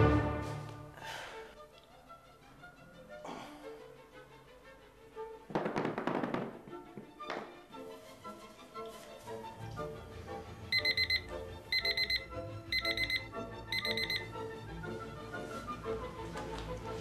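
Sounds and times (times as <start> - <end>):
background music: 0.0 - 17.0
alarm clock beeping: 10.7 - 14.4.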